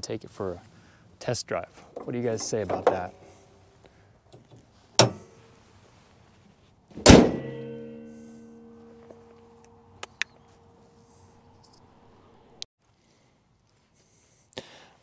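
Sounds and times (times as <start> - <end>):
car hood slamming shut: 5.0 - 5.3, 7.0 - 7.9
metallic ringing: 7.3 - 9.9.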